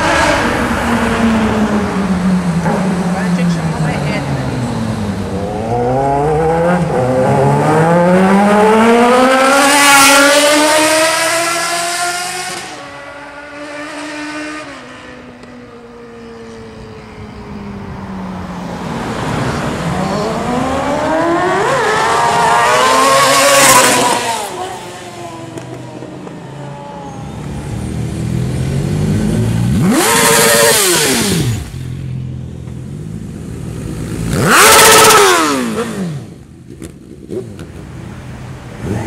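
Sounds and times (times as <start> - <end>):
second motorcycle revving: 0.0 - 15.6, 18.8 - 26.6, 27.3 - 39.0
motorcycle engine pulling hard: 28.2 - 32.0, 32.9 - 38.1.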